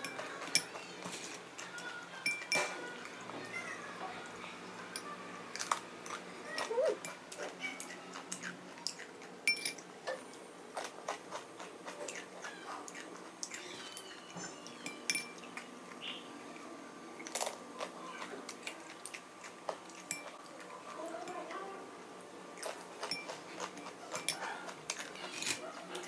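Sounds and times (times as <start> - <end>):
metal spoon clinking on glass: 2.2 - 2.8, 8.9 - 9.8, 14.8 - 15.4, 20.1 - 20.4.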